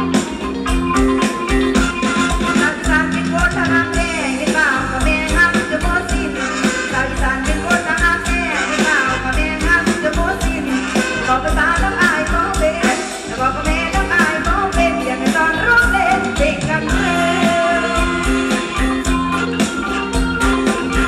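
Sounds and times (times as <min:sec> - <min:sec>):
band playing: 0:00.0 - 0:21.0
woman singing: 0:02.4 - 0:19.5.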